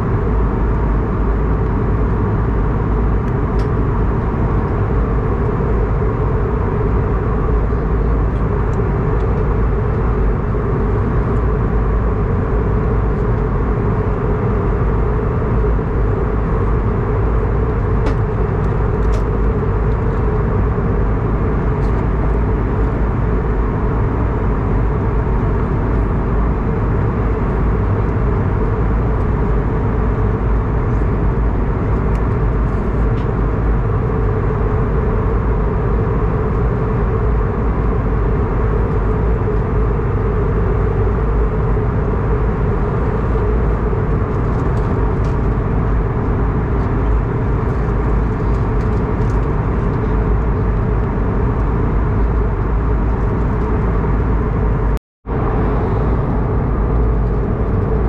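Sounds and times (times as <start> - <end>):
airliner cabin engine drone: 0.0 - 58.0
rushing air: 55.2 - 58.0.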